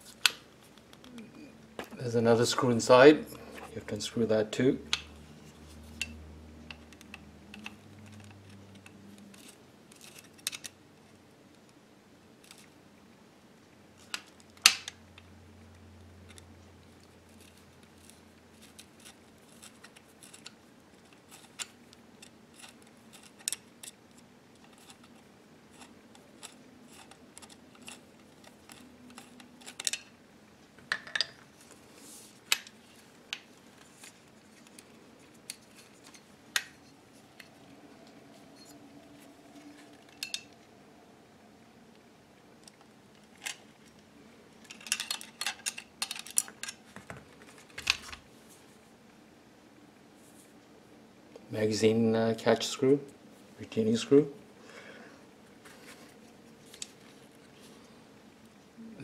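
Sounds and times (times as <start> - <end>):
screwdriver and metal parts clicking: 17.4 - 30.1, 39.8 - 40.6, 44.6 - 46.8.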